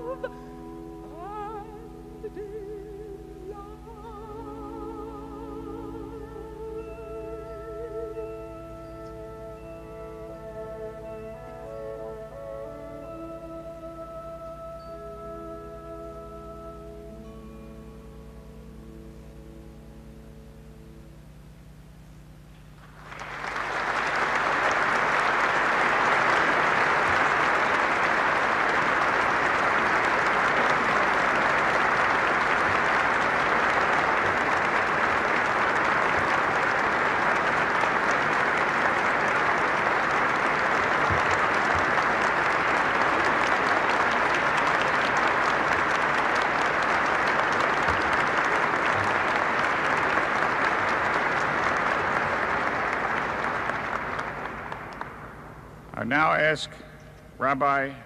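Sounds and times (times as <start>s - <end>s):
large crowd applauding: 22.8s - 58.0s.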